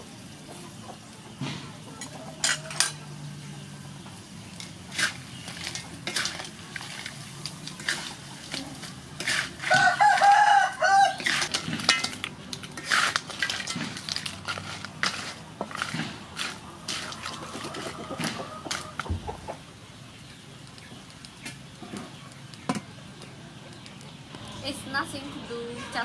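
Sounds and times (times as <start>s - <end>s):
spatula scraping in metal wok: 2.0s - 3.0s, 4.5s - 19.0s
chicken calling: 9.6s - 11.5s, 16.2s - 19.8s.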